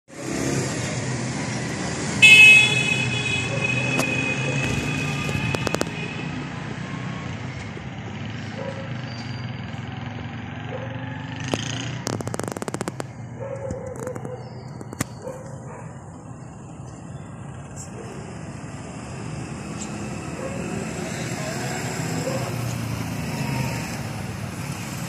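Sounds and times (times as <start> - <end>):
street traffic rumble: 0.1 - 25.0
sharp clicks: 11.4 - 15.6.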